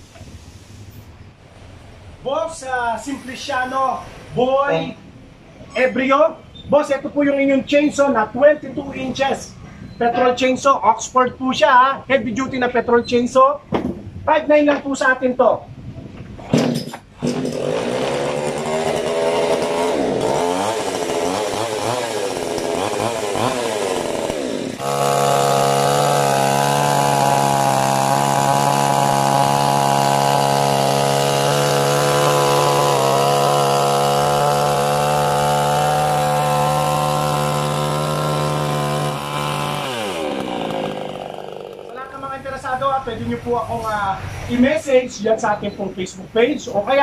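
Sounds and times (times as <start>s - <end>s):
chainsaw revving and cutting log: 17.2s - 42.2s.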